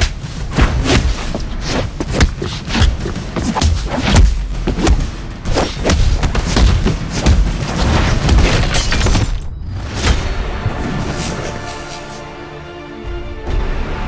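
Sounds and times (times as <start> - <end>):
punch impacts with booming thuds: 0.0 - 9.2.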